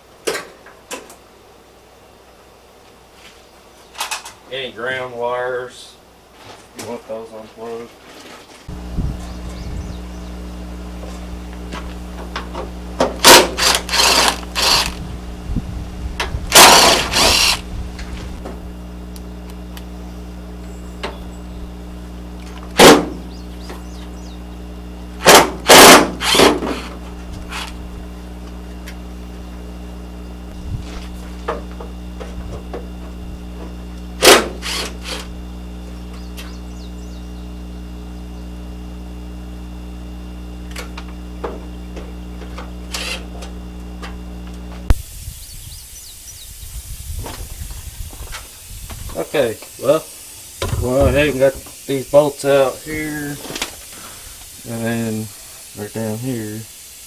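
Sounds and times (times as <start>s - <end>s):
steady low hum: 0.0s - 57.0s
cordless power driver whirring: 8.7s - 45.5s.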